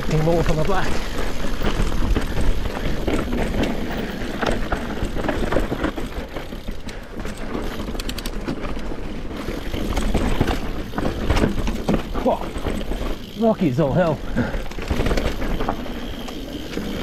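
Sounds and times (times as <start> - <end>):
bike rattling and knocking: 0.0 - 17.0
bike tyres crunching on rocks: 0.0 - 17.0
fine clicking: 0.0 - 17.0.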